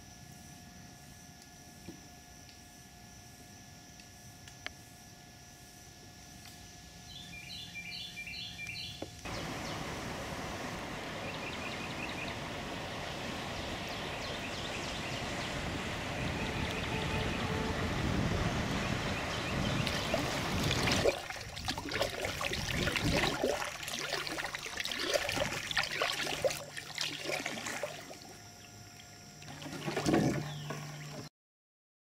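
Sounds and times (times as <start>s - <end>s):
steady outdoor hiss: 0.0s - 31.3s
paddle splashing water: 9.3s - 28.3s, 29.4s - 31.3s.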